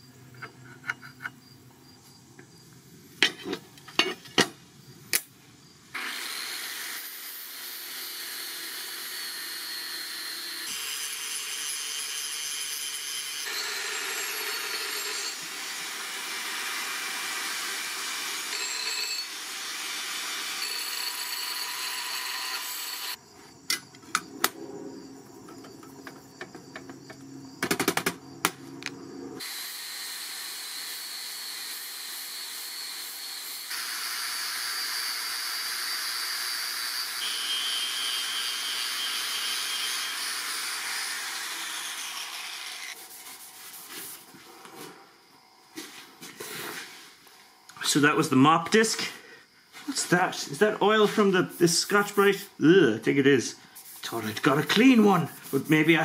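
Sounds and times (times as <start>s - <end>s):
metal clanks and taps: 0.3s - 1.4s, 3.2s - 4.6s
angle grinder grinding metal: 6.0s - 23.2s, 29.4s - 43.1s.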